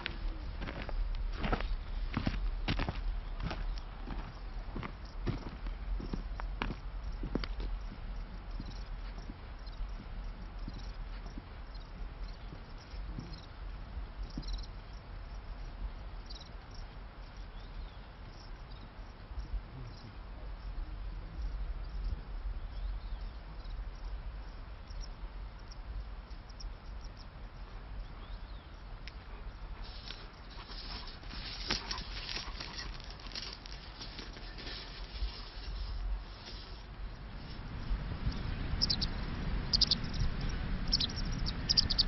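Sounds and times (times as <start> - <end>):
faint high insect chirps: 0.0 - 42.0
low rumble: 37.0 - 42.0.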